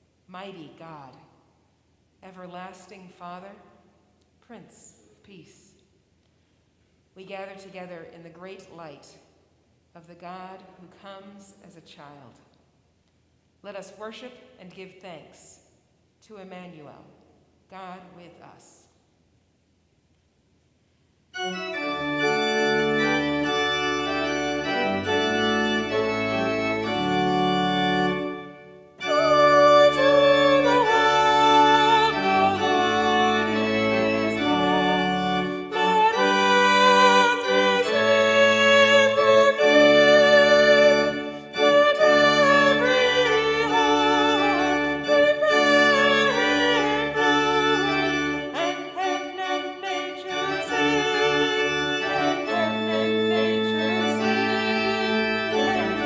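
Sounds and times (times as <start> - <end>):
church organ playing chords: 21.3 - 56.0.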